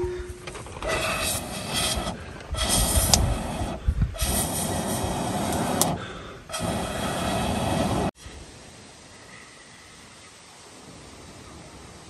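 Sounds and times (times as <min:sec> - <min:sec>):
person blowing through blowpipe: 0:00.0 - 0:08.1.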